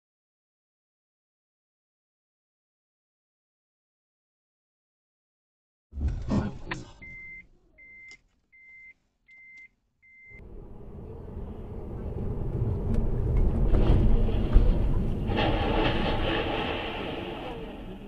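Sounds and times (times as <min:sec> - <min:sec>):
car cabin driving noise: 0:06.0 - 0:17.9
harsh rushing noise: 0:10.4 - 0:18.0.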